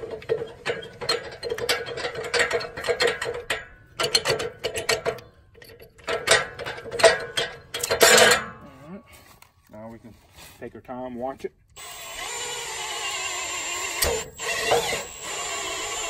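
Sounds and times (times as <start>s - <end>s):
steel hook and handle clanking: 0.0s - 8.6s.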